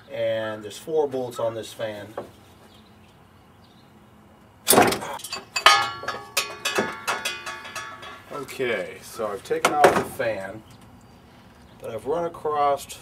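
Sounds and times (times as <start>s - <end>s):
loud metal knock: 4.7s - 8.3s
metal clanking and clinking: 4.7s - 8.8s.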